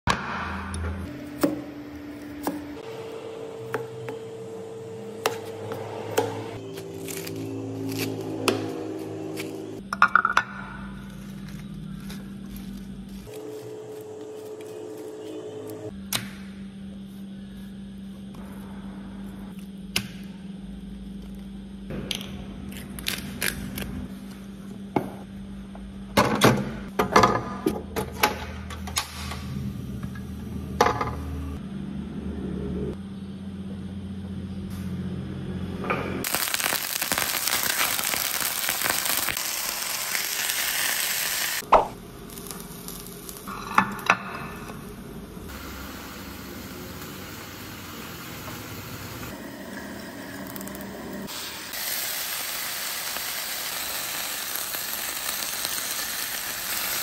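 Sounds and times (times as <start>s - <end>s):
chicken sizzling in a pan: 36.3s - 41.6s, 51.3s - 57.0s.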